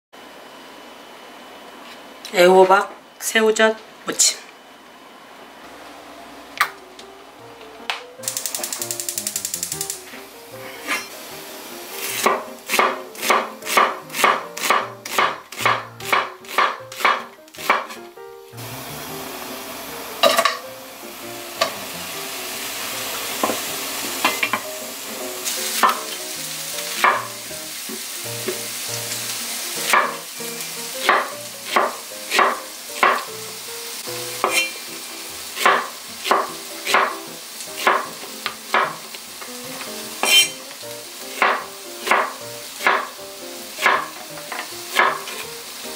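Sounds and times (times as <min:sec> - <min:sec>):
hiss: 0:08.2 - 0:14.3, 0:21.1 - 0:45.9
knife chopping on wooden board: 0:12.1 - 0:18.0, 0:27.0 - 0:27.3, 0:31.0 - 0:33.3, 0:35.6 - 0:37.2, 0:37.8 - 0:39.0, 0:41.4 - 0:43.1, 0:43.8 - 0:45.4.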